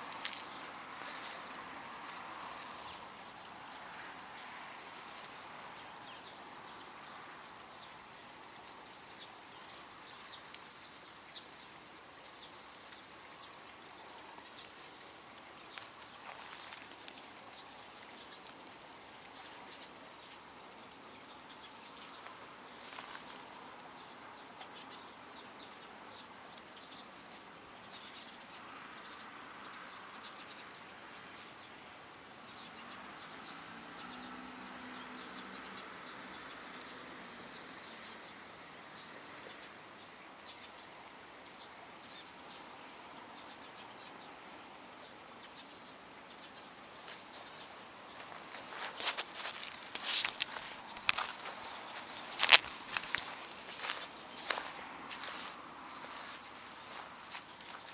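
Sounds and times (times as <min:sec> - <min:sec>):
dry grass crackling and rustling: 0:00.0 - 0:05.6, 0:14.3 - 0:20.5, 0:21.2 - 0:23.6, 0:47.0 - 0:57.9.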